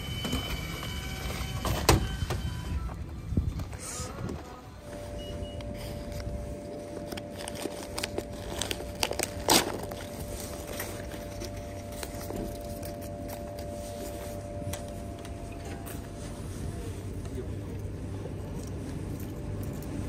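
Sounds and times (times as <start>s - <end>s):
plastic bag crinkling: 5.8s - 13.8s
bag ripping open: 7.1s - 10.4s.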